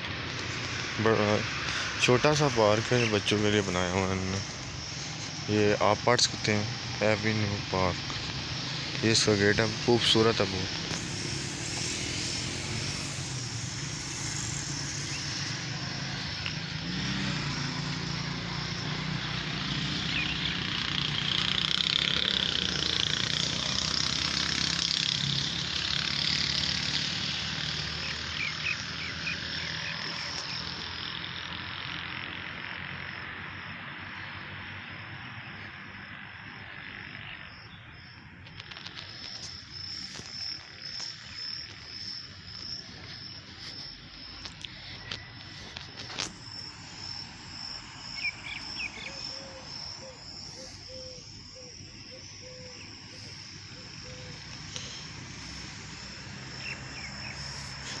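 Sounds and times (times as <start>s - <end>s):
insects buzzing: 0.0s - 58.0s.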